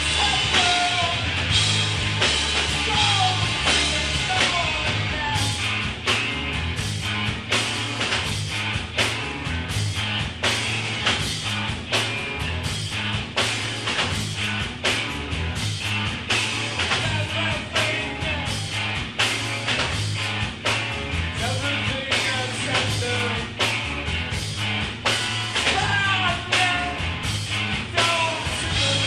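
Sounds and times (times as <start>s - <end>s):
bass guitar: 0.0s - 29.0s
drum beat: 0.0s - 29.0s
electric guitar: 0.0s - 29.0s
person singing: 2.8s - 5.6s, 27.7s - 29.0s.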